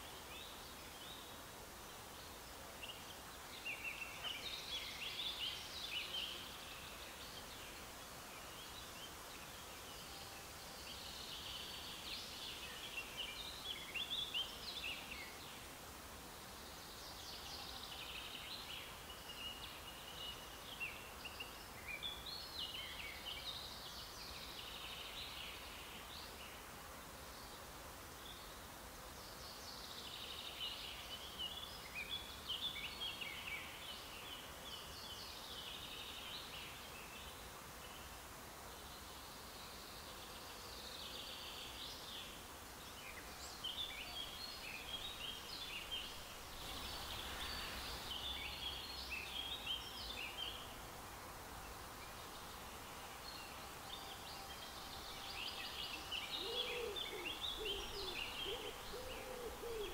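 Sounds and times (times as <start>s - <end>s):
songbirds chirping and trilling: 0.0s - 15.8s, 16.4s - 59.9s
faint background hiss: 0.0s - 59.9s.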